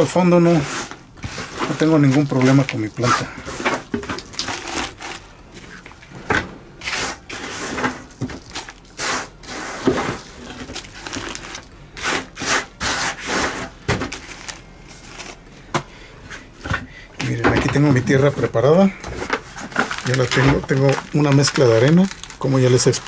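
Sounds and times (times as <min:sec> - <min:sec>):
dry bark rustling: 0:06.9 - 0:11.7, 0:19.4 - 0:23.0.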